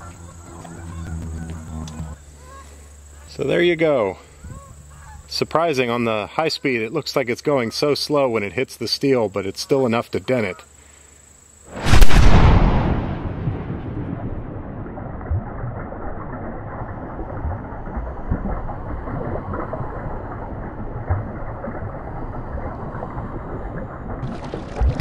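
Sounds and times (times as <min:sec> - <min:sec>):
deep rumbling wash of noise: 0:11.7 - 0:24.2.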